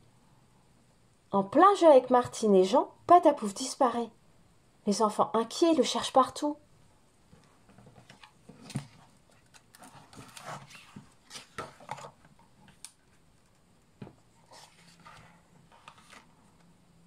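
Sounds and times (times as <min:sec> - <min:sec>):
paper rustling: 0:07.8 - 0:13.2, 0:14.4 - 0:16.7
book pages turning: 0:07.8 - 0:13.6, 0:14.2 - 0:16.8.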